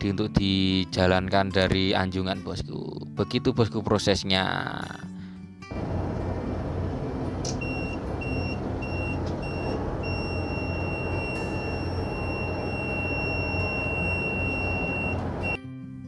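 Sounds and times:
loud engine room machinery: 0:05.7 - 0:15.6
alarm panel buzzer beeping: 0:07.5 - 0:15.6.

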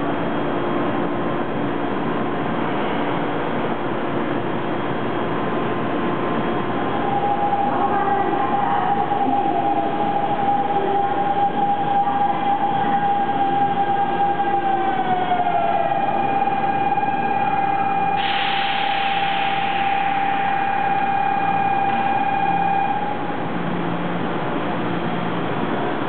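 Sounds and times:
electric train motor whine: 0:06.8 - 0:23.2
steady high tone: 0:06.8 - 0:23.3
air brake hiss: 0:18.2 - 0:20.4.

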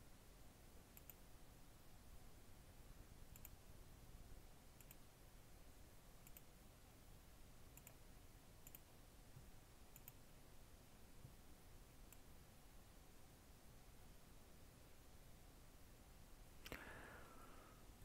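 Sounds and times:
computer mouse clicks: 0:00.9 - 0:01.2, 0:03.3 - 0:03.6, 0:04.8 - 0:05.0, 0:06.2 - 0:06.5, 0:07.7 - 0:08.0, 0:08.6 - 0:08.9, 0:09.9 - 0:10.2, 0:12.1 - 0:12.3.

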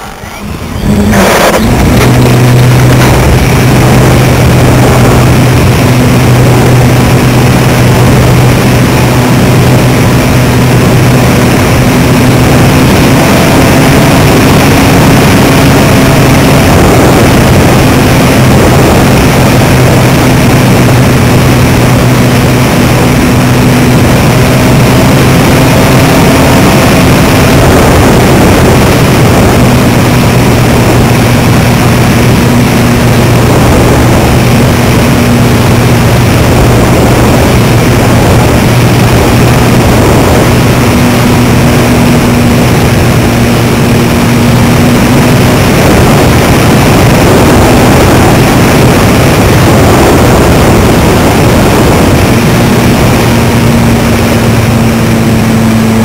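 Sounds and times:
air rushing noise: 0:00.0 - 0:56.0.

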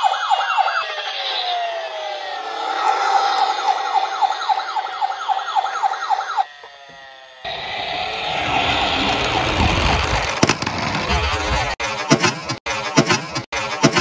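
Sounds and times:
toy siren yelping: 0:00.0 - 0:10.2
rushing noise: 0:01.2 - 0:05.2, 0:07.5 - 0:11.8.

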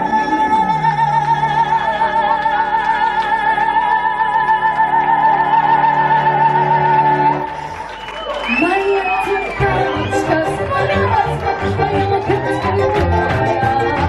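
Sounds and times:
woman singing high note: 0:00.0 - 0:07.3.

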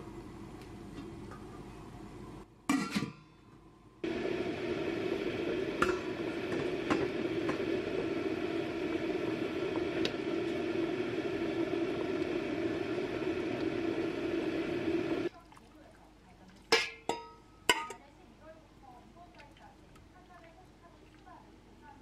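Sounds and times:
broth boiling hard in a pot: 0:04.0 - 0:17.9
metal clinks against pot: 0:16.7 - 0:18.0.

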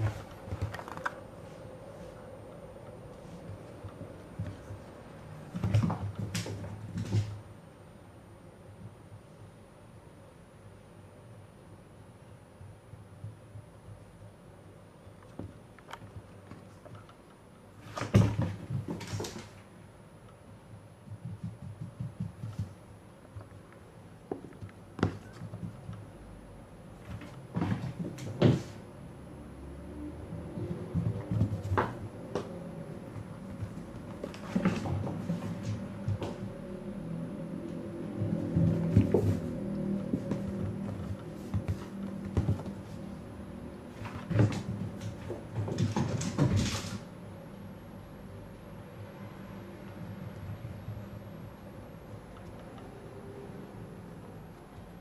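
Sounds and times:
cat scrambling on hardwood floor: 0:27.0 - 0:28.8, 0:33.1 - 0:36.4, 0:38.2 - 0:43.0, 0:43.9 - 0:47.1
cat paws thumping on wooden floor: 0:38.2 - 0:43.0.

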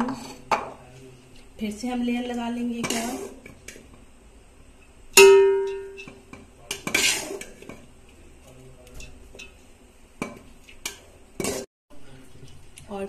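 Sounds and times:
spoon scraping pot: 0:00.0 - 0:00.6, 0:02.8 - 0:04.0, 0:05.6 - 0:07.9, 0:09.0 - 0:11.7
spoon clanging on metal pot: 0:05.2 - 0:07.1.

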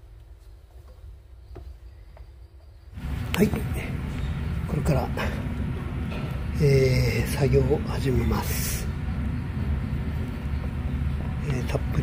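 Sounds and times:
faint steady hum: 0:00.0 - 0:12.0
steady low rumble: 0:03.0 - 0:12.0.

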